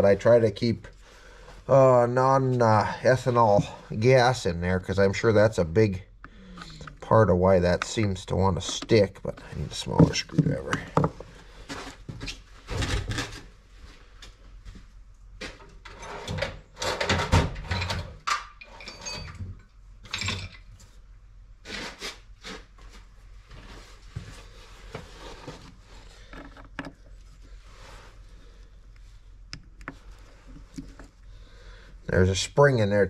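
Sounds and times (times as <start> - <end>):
tools and metal parts handled: 15.8 - 20.9.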